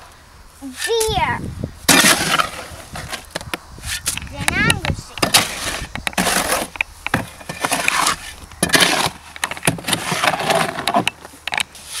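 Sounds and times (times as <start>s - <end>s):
shovel knocks: 1.9s - 3.1s, 3.9s - 11.1s
shovel scraping wet concrete: 1.9s - 3.2s, 5.1s - 11.1s, 11.8s - 12.0s.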